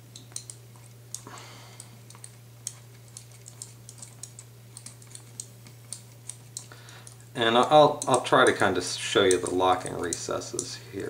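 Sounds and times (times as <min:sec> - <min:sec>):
steady low hum: 0:00.0 - 0:11.0
allen key clicking in screws: 0:02.0 - 0:08.6, 0:09.2 - 0:10.7.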